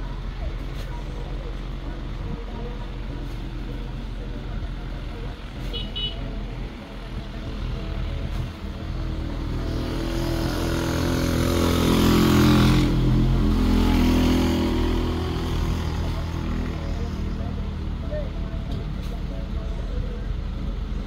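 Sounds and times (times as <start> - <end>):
vehicle engine passing by: 7.5 - 19.4.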